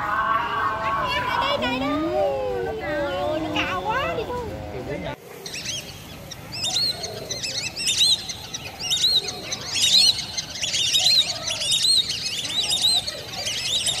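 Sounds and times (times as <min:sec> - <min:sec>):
ducks whistling: 0:05.5 - 0:14.0.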